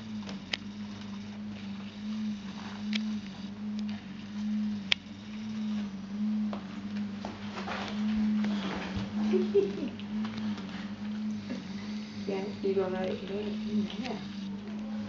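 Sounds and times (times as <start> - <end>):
faint rustling: 0.0 - 15.0
low pulsing hum: 0.0 - 15.0
sharp clicks: 4.8 - 5.1.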